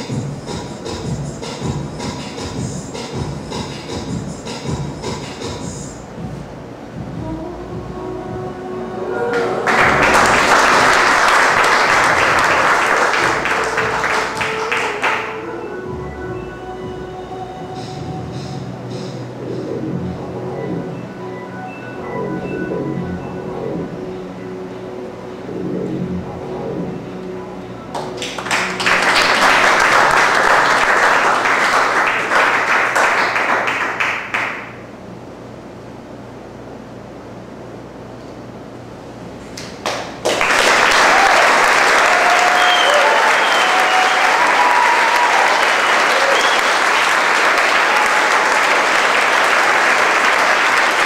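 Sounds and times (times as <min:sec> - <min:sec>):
performance music: 0:07.0 - 0:33.5, 0:40.7 - 0:51.0
audience applause: 0:09.3 - 0:15.4, 0:28.0 - 0:34.6, 0:39.8 - 0:51.0.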